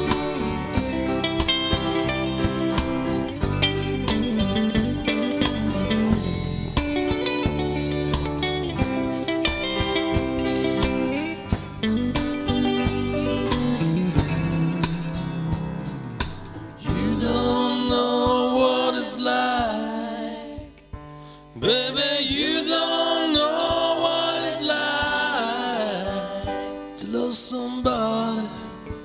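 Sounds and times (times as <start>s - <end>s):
drum beat: 0.0s - 18.7s, 22.3s - 25.4s
guitar and keyboard notes: 0.0s - 29.0s
wordless singing: 16.8s - 20.9s, 21.5s - 28.7s.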